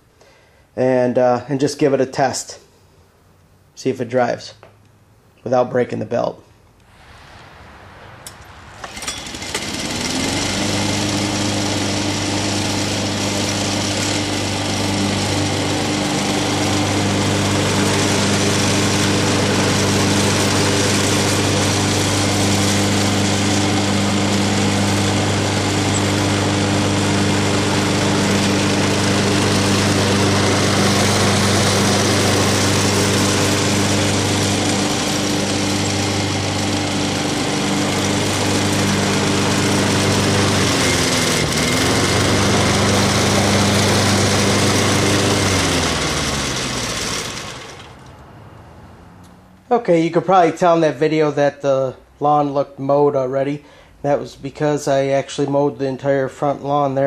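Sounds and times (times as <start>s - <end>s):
lawn mower engine running: 8.2s - 49.6s.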